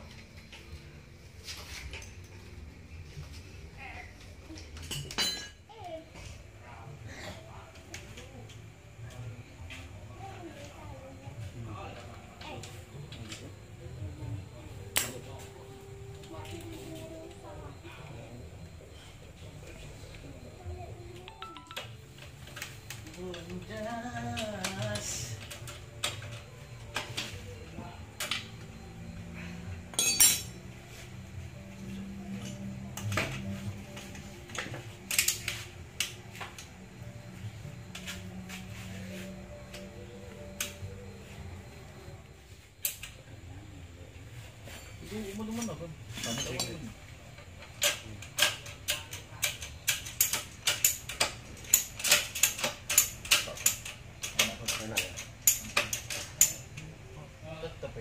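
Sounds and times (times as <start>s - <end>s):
metal tools clinking on engine parts: 29.9s - 30.6s, 46.1s - 46.8s.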